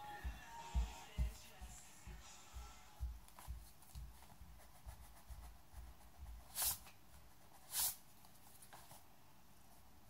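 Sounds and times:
pencil scratching on paper: 3.3s - 9.0s
swishes rubbing across paper: 6.4s - 8.0s.

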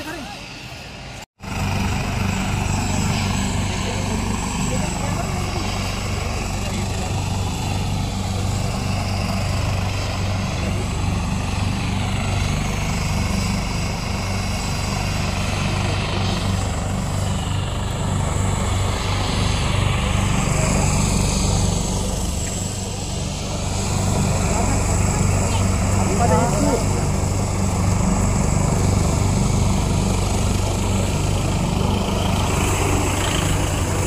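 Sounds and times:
helicopter engine and rotor: 0.0s - 34.0s.

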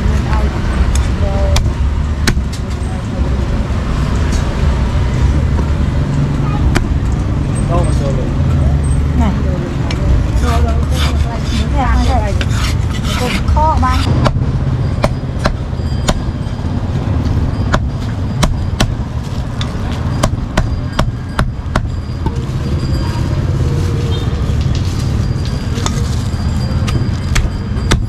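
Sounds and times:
cleaver chopping on wooden block: 1.5s - 2.5s, 26.9s - 28.0s.

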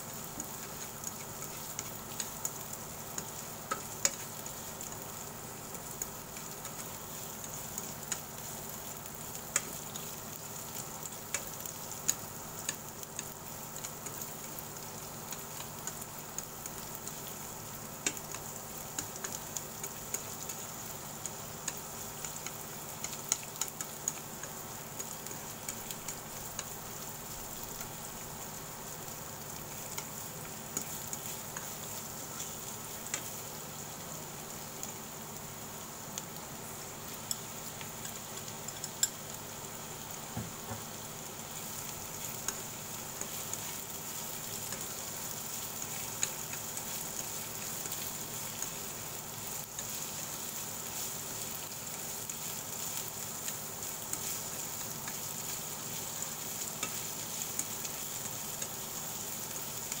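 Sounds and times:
vegetables sizzling in oil: 0.0s - 60.0s
chopsticks clicking on pan: 0.4s - 4.4s, 6.0s - 8.4s, 9.3s - 10.2s, 11.0s - 14.3s, 18.0s - 20.6s, 21.2s - 26.8s, 32.4s - 33.4s, 37.2s - 39.2s, 42.2s - 48.8s, 52.9s - 58.8s.

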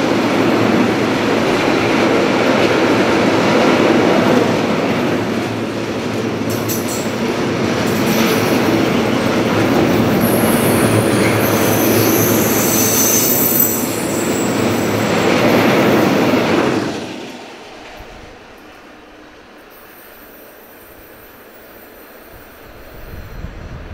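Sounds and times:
train wheels rumbling on rails: 0.0s - 23.9s
high wheel squeal: 8.0s - 16.2s.

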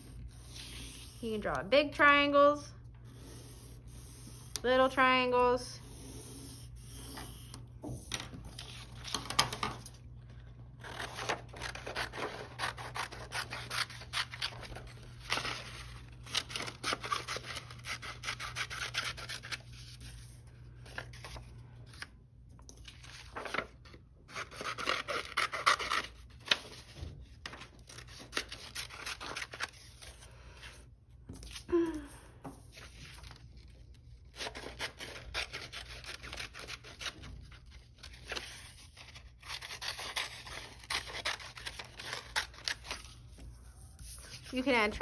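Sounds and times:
scissors snipping paper: 10.8s - 19.7s, 24.3s - 26.8s, 33.6s - 43.1s
paper rustling on table: 10.8s - 31.7s.

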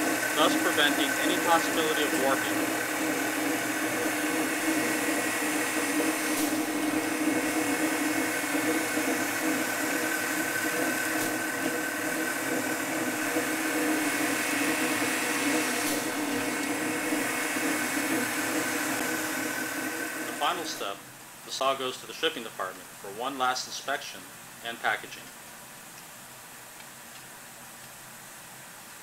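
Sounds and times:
polishing machine humming and whining: 0.0s - 20.9s.

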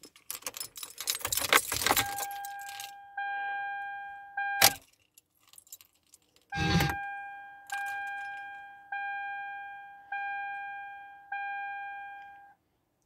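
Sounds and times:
dashboard warning chime ding: 6.6s - 12.5s.

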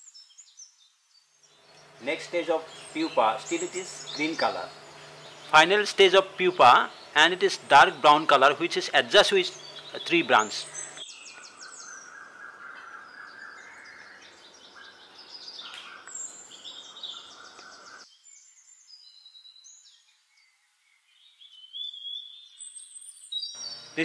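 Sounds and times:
small birds chirping and whistling: 0.0s - 24.0s
low background hum: 1.5s - 11.0s.

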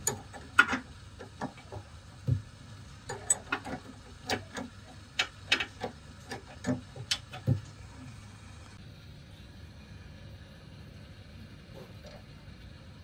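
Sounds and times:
spanner clicking: 0.0s - 1.8s, 3.1s - 7.6s.

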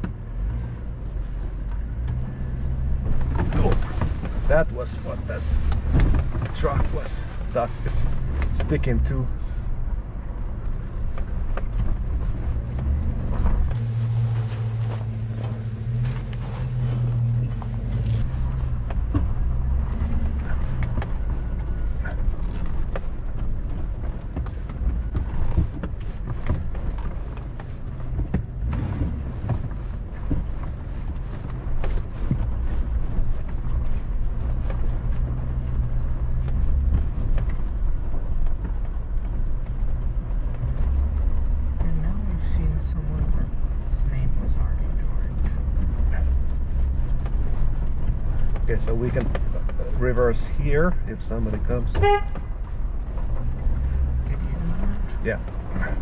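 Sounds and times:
car engine running at low speed: 0.0s - 56.0s
tyres crunching on gravel: 2.9s - 9.8s.

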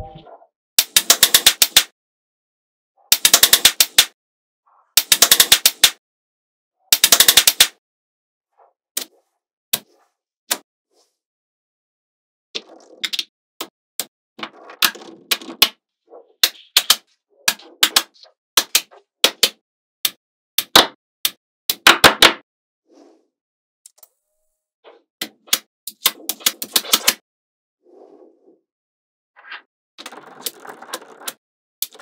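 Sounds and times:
magnetic balls clicking together: 30.0s - 32.0s.

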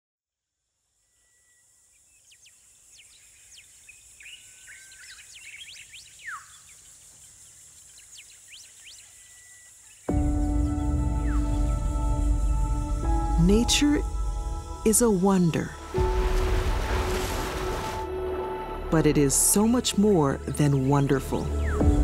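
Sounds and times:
high insect hum: 0.8s - 18.8s
bird chirps: 1.0s - 12.6s.

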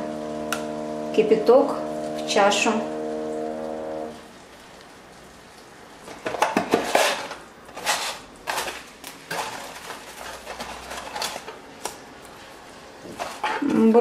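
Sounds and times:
cardboard packet rustling and scraping: 6.0s - 13.7s.

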